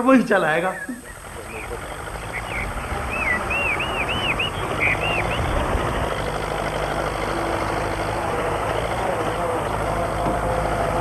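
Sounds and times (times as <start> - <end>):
tractor engine running: 0.0 - 11.0
bird chirping: 0.4 - 7.3.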